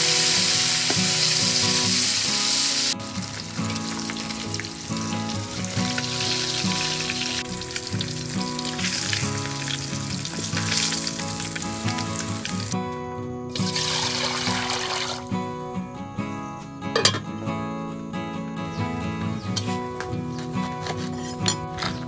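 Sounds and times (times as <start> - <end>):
fish sizzling in hot oil: 0.0 - 12.8, 13.5 - 15.3
light background music: 0.0 - 22.0.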